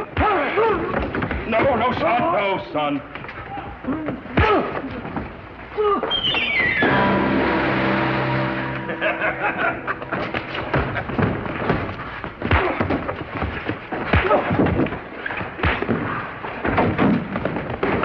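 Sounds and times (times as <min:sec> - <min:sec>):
men shouting and grunting: 0:00.0 - 0:02.1, 0:03.5 - 0:06.1
punch and body-fall thuds: 0:10.8 - 0:18.0.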